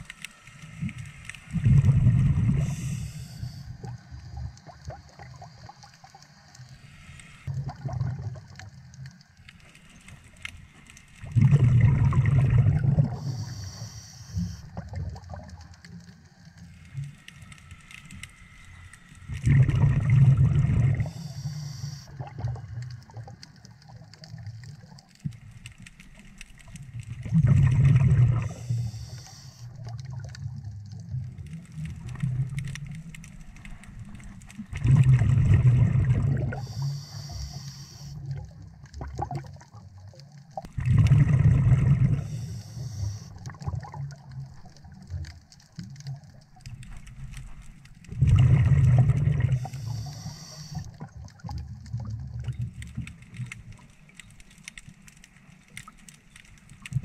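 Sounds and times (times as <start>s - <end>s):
low bubbling exhalations underwater: 1.5s - 3.0s, 7.5s - 8.7s, 11.2s - 13.5s, 19.3s - 21.3s, 27.2s - 28.9s, 34.7s - 36.9s, 38.2s - 40.0s, 40.6s - 45.1s, 48.1s - 52.6s
regulator hiss: 2.5s - 4.5s, 13.1s - 14.7s, 21.0s - 22.1s, 28.6s - 29.7s, 36.6s - 38.2s, 42.2s - 43.4s, 49.6s - 50.9s.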